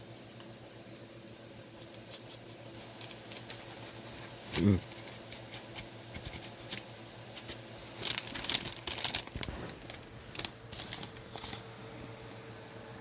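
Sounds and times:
paper bag crinkling: 0:02.0 - 0:11.7.

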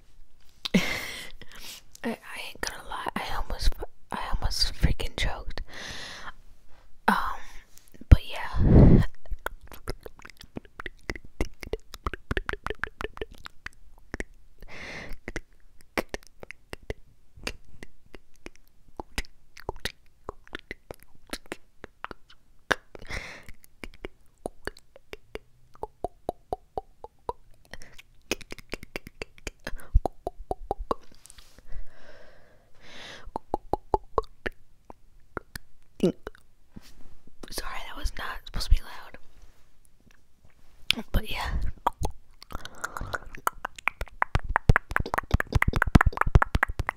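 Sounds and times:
wet lip and tongue clicks: 0:09.3 - 0:14.4, 0:15.1 - 0:31.5, 0:33.2 - 0:36.5, 0:41.6 - 0:46.9.

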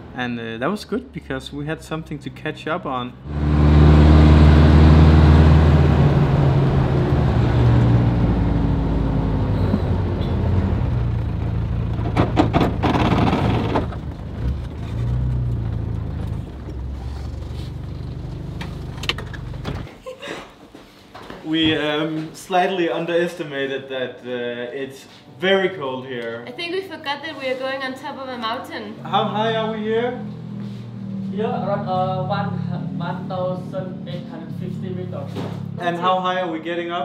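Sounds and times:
car engine from inside cabin: 0:03.3 - 0:19.8, 0:29.0 - 0:35.8
knocks and rattles: 0:11.2 - 0:17.4.

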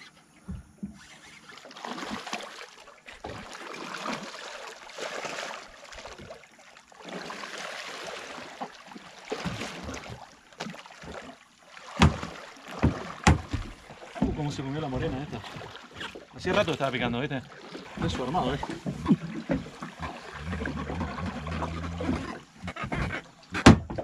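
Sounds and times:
fish thrashing in water: 0:01.1 - 0:23.8
knocks: 0:12.0 - 0:14.4.

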